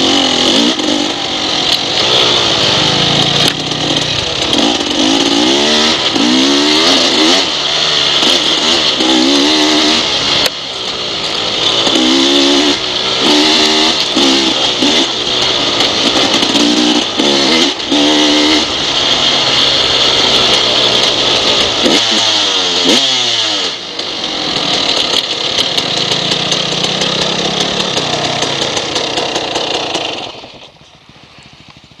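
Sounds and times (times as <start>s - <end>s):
dirt bike engine revving: 0.0s - 31.6s.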